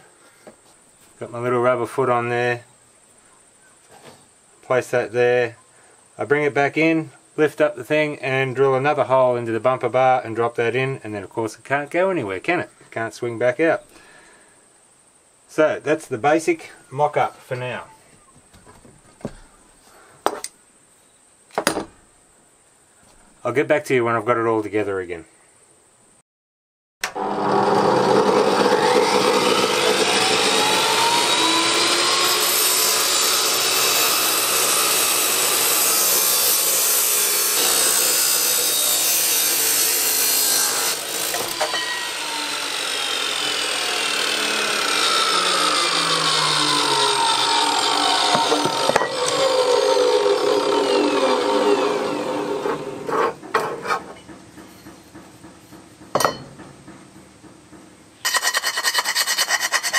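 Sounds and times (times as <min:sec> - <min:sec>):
cut-off saw cutting steel pipe: 0:27.0 - 0:54.2, 0:58.2 - 0:59.9.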